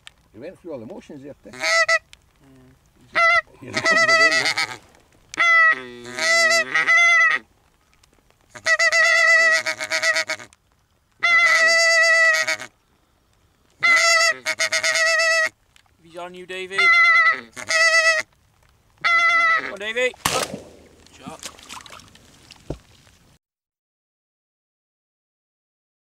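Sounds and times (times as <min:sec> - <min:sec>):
geese honking: 0:01.5 - 0:02.2, 0:03.1 - 0:07.5, 0:08.5 - 0:10.6, 0:11.2 - 0:12.8, 0:13.8 - 0:15.6, 0:16.6 - 0:18.4, 0:19.0 - 0:20.1.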